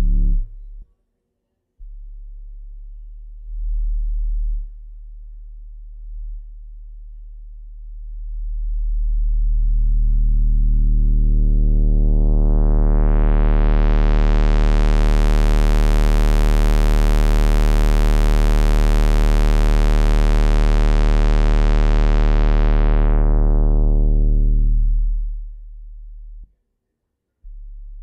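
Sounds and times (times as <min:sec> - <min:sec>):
synthesizer bass note: 0:00.0 - 0:00.8, 0:09.5 - 0:26.4.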